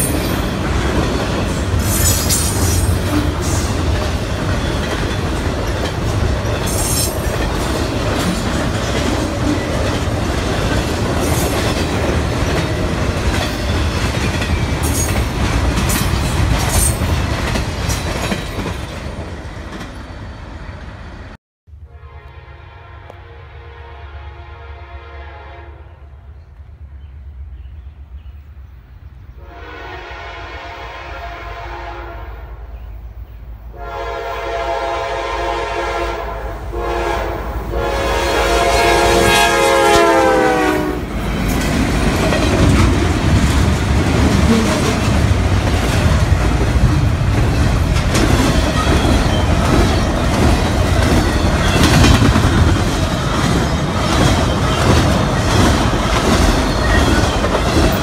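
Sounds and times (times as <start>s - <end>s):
train wheels clattering on rails: 0.0s - 20.2s, 41.1s - 58.0s
locomotive horn blowing: 21.7s - 26.0s, 29.4s - 32.6s, 33.7s - 41.1s.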